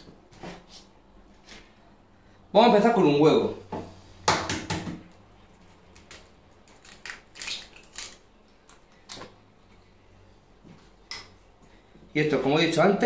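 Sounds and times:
eggshell cracking: 6.6s - 8.8s.

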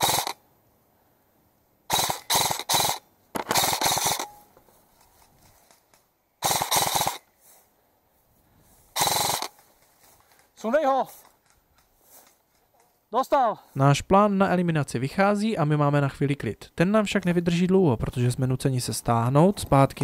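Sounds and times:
airsoft gun rapid bursts: 0.0s - 0.4s, 1.9s - 4.4s, 6.4s - 7.3s, 9.0s - 9.6s.

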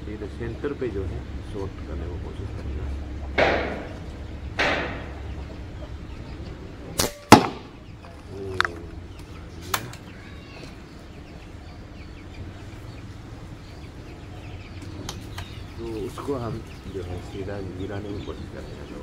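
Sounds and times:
air rifle shot crack: 3.4s - 4.0s, 4.6s - 5.2s, 7.0s - 7.8s.

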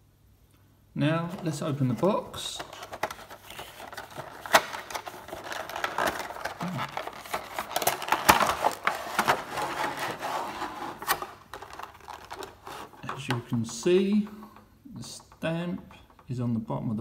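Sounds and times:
rustling of card and plastic: 1.2s - 14.3s.

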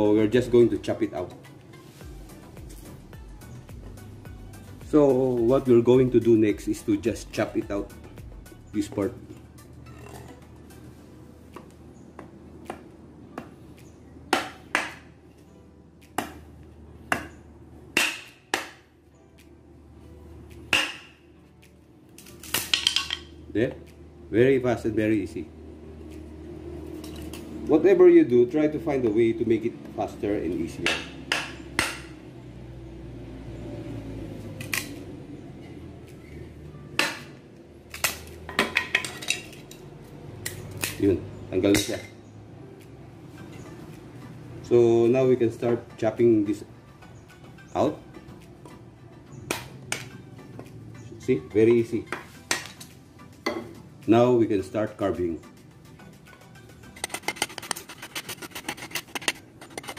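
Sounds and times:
knife chopping wood: 11.6s - 13.6s, 14.3s - 15.1s, 16.1s - 16.5s, 17.1s - 18.9s, 20.6s - 21.2s, 30.7s - 32.2s, 37.0s - 39.0s
knife chopping into wood: 14.3s - 15.1s, 16.2s - 16.4s, 17.1s - 17.4s, 18.0s - 18.8s, 20.7s - 21.2s, 30.8s - 32.1s, 37.0s - 37.3s.

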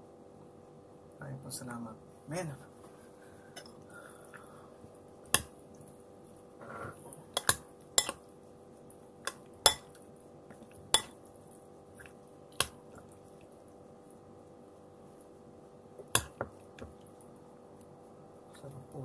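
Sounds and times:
faint steady hum: 0.0s - 19.0s
cutlery and dishes clinking: 7.4s - 8.2s.

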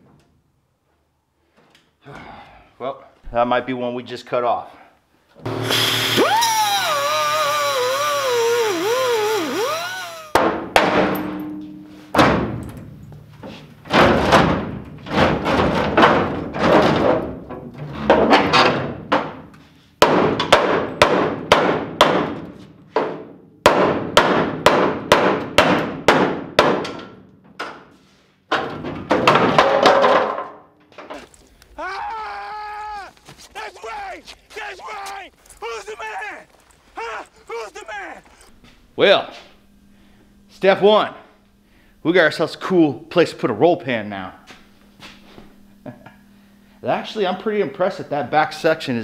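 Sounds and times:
cutoff wheel whining: 5.4s - 10.4s
hammer pounding steel: 10.3s - 12.6s.

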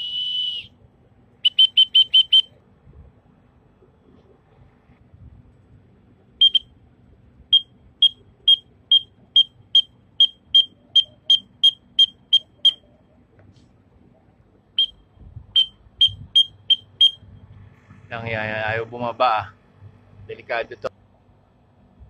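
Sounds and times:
high whistled chirps: 0.0s - 0.8s, 1.4s - 2.6s.

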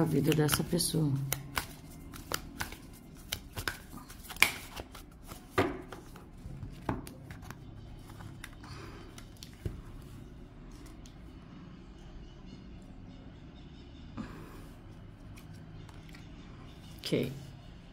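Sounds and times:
cards snapping while shuffled: 0.1s - 6.2s.

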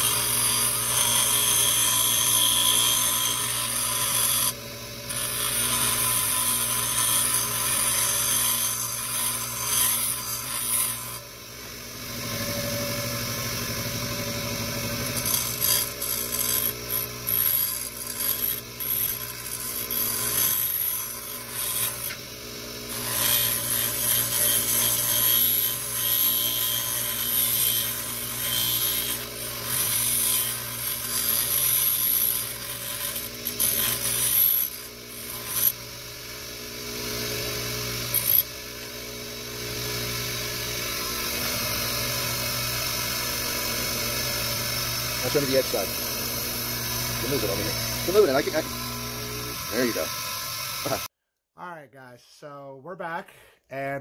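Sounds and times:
metal key scraping grinding wheel: 0.0s - 11.2s, 15.0s - 22.2s, 22.9s - 35.8s, 40.8s - 51.1s
electric grinder motor hum: 0.0s - 51.1s.

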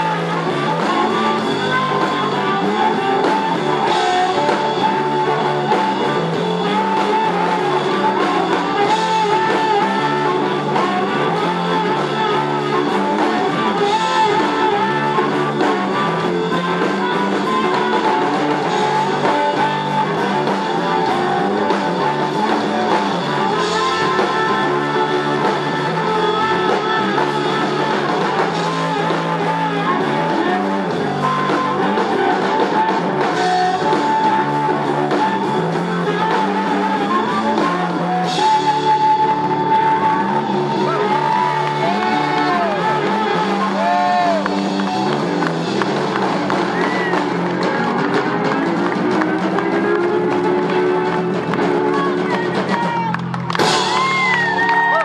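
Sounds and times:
drum kit: 0.0s - 55.0s
electric bass: 0.0s - 55.0s
electric lead guitar: 0.0s - 55.0s.

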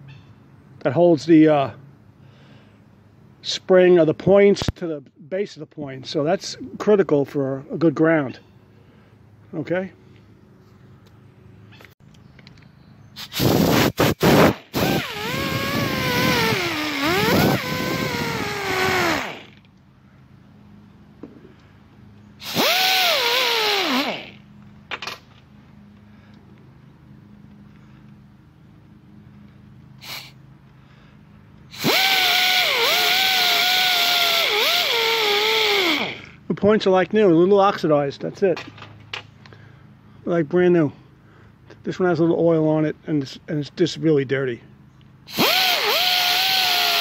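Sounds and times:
air-powered rotary tool whining: 13.2s - 19.7s, 22.4s - 24.5s, 30.0s - 30.4s, 31.7s - 36.4s, 45.3s - 47.0s.

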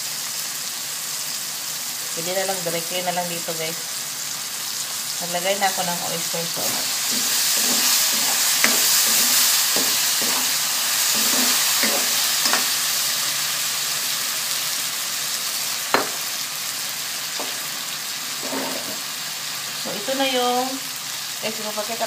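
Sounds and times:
vegetables sizzling in a wok: 0.0s - 22.0s
spatula scraping and tapping pan: 6.6s - 12.8s, 16.0s - 16.3s, 17.4s - 17.7s, 18.4s - 19.0s.

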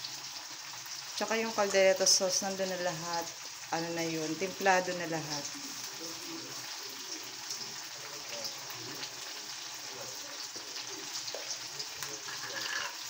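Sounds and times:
sauce sizzling and bubbling in a wok: 0.0s - 13.0s.

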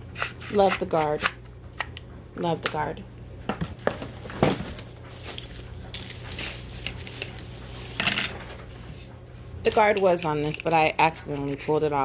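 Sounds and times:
bubble wrap crinkling: 4.3s - 8.9s.

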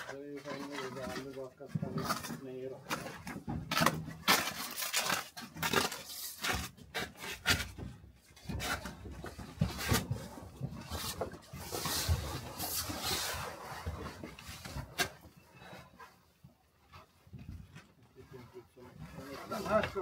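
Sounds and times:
wood scraping and rubbing: 0.0s - 15.3s, 18.3s - 20.0s
wooden knocks and clunks: 1.0s - 4.4s.

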